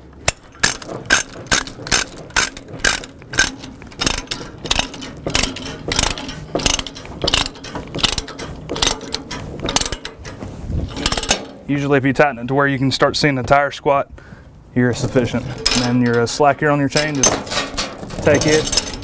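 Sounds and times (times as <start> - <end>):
ratchet pawl clicking: 0.6 - 9.0.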